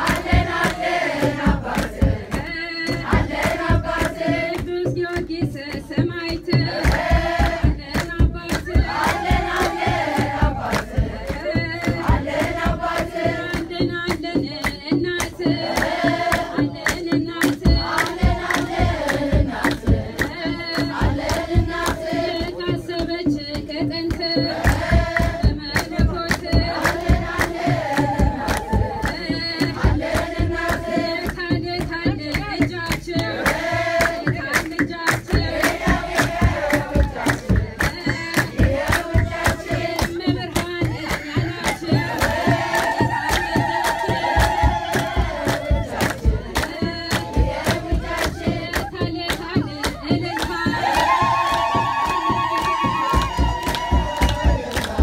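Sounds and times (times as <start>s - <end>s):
drum beating steady rhythm: 0.0s - 55.0s
hand clapping: 0.0s - 55.0s
women singing a hymn: 0.0s - 55.0s.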